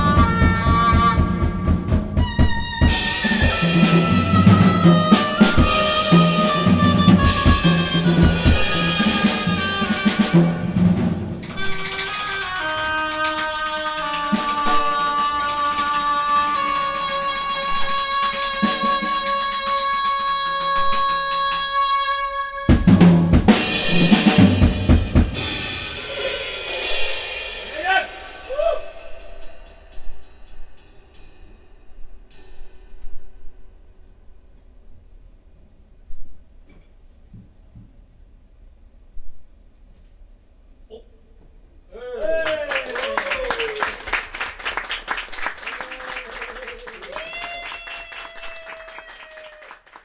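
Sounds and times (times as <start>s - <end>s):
live band music: 0.0s - 29.9s
drum kit playing: 0.0s - 31.3s.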